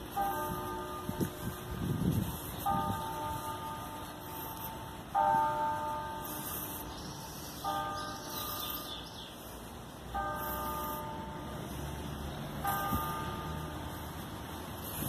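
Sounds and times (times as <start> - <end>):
church bell tolling: 0.0 - 9.1, 10.1 - 11.7, 12.6 - 14.5.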